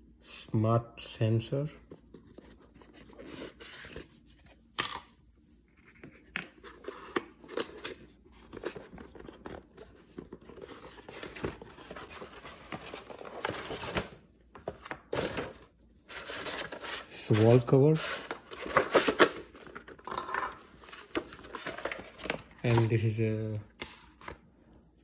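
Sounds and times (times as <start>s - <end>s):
paper rustling: 20.8s - 23.1s.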